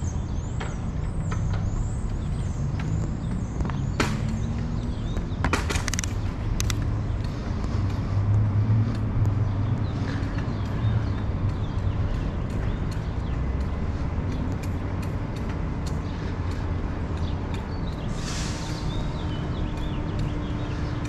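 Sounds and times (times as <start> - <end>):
bicycle tyres on pavement: 0.0 - 21.0
wind rumbling on microphone: 0.0 - 21.0
sharp clicks and rattles: 0.6 - 7.8.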